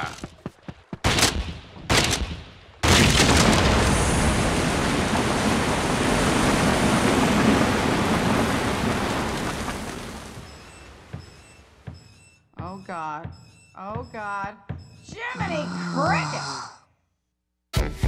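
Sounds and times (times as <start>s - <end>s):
floodwater gushing: 3.8s - 10.5s.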